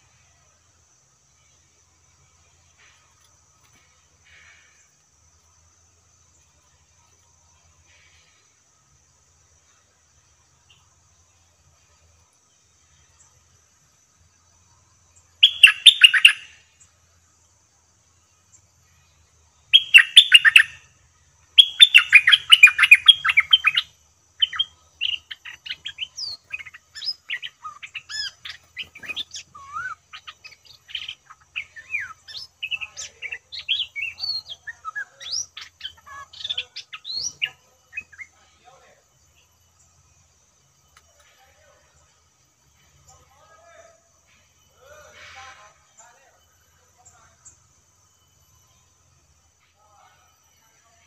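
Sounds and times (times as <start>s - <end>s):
bulbul singing: 14.8s - 17.0s, 18.5s - 41.2s
bird chirps and whistles: 15.4s - 16.5s, 19.8s - 20.8s, 21.6s - 38.3s.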